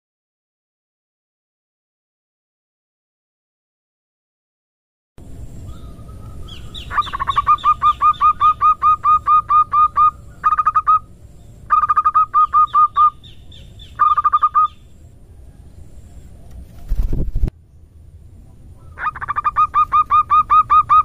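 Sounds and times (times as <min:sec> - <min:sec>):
dove cooing rapidly: 0:05.7 - 0:11.1, 0:11.7 - 0:14.8, 0:18.8 - 0:21.0.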